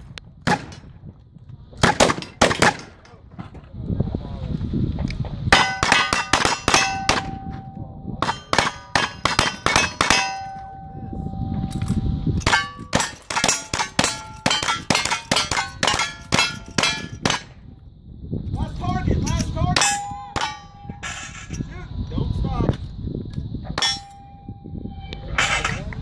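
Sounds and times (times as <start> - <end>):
gunshots: 0.4 - 0.8, 1.8 - 3.0, 8.2 - 10.5
steel plate target ringing: 5.6 - 17.5, 19.3 - 21.7, 23.8 - 24.8.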